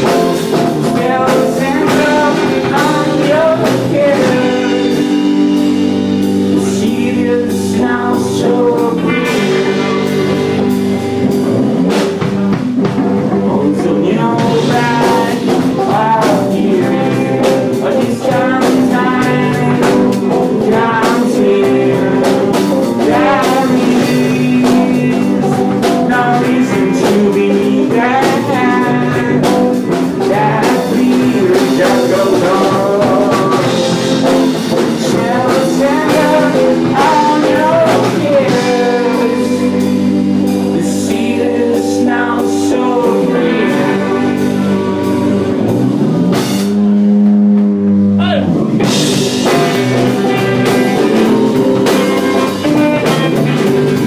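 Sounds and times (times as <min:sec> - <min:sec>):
person singing: 0:00.0 - 0:11.4, 0:13.2 - 0:46.0, 0:48.2 - 0:54.0
drum kit: 0:00.0 - 0:54.0
electric guitar: 0:00.0 - 0:54.0.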